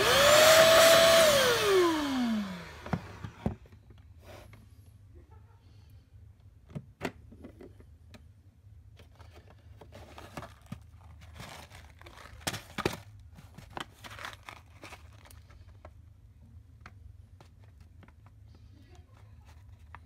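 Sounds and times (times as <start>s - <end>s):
paper rustling: 9.0s - 15.9s.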